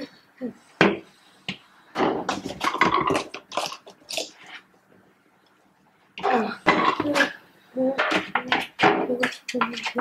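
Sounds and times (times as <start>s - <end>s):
plastic bottles clicking and knocking: 2.0s - 4.6s.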